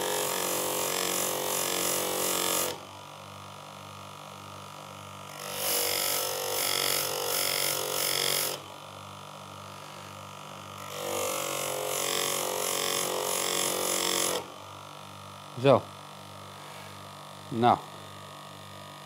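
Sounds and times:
sharpening machine motor hum: 0.0s - 2.8s, 5.3s - 8.8s, 9.7s - 14.8s.

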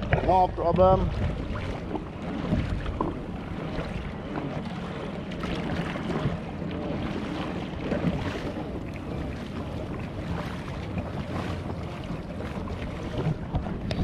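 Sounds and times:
water splashing against kayak hull: 0.0s - 14.0s
wind on microphone: 0.0s - 14.0s.

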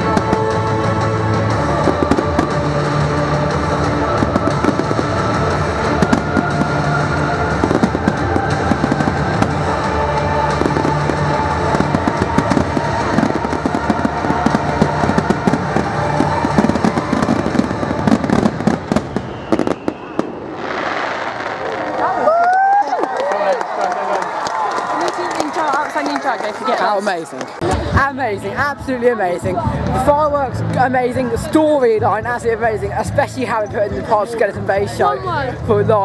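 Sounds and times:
loud music: 0.0s - 21.7s
firework bangs and crackling: 0.0s - 22.7s.

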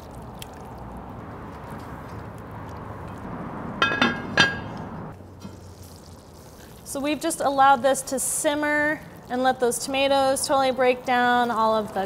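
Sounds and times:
simmering sauce hissing: 5.3s - 10.8s.

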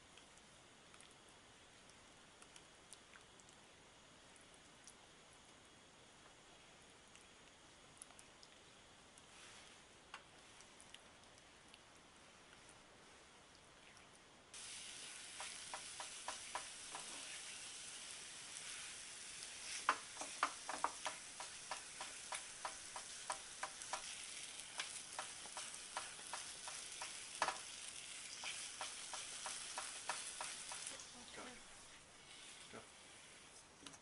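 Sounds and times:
batter sizzling in a pan: 14.5s - 33.5s
spatula scraping a pan: 19.6s - 30.9s.

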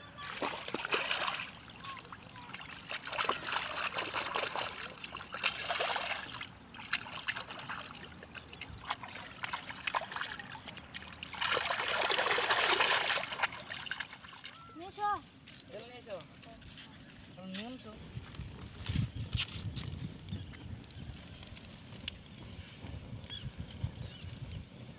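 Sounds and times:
shallow water splashing: 0.2s - 15.1s.

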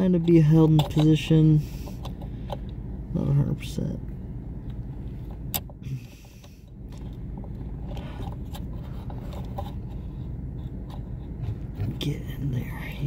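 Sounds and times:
steady low hum: 0.0s - 13.0s
plastic part clicking and scraping: 5.6s - 11.9s.

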